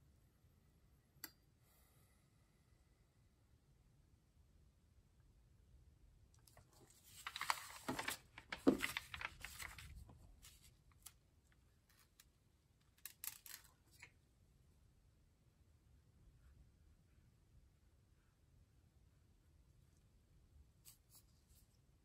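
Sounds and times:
paper sliding and rustling: 6.8 - 10.7.

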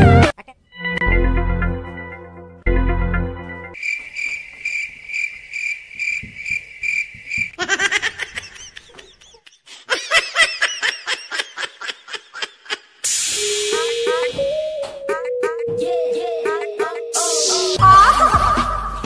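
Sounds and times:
cricket chirping: 3.8 - 8.9
high-pitched giggling: 7.6 - 13.0.

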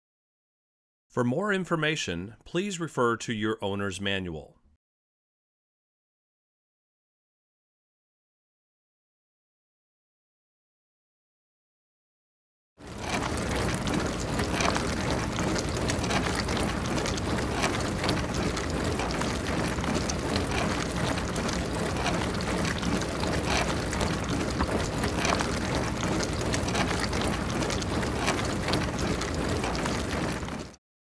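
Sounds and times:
dishwasher water spraying: 12.8 - 30.8.

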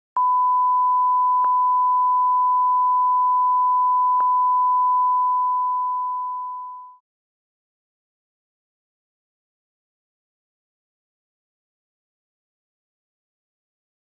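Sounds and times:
sine test tone: 0.2 - 7.0.

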